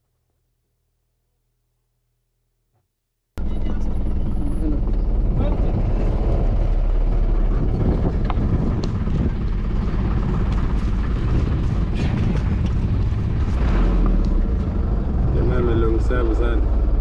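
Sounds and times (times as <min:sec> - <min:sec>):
vehicle engine rumble: 0:03.4 - 0:17.0.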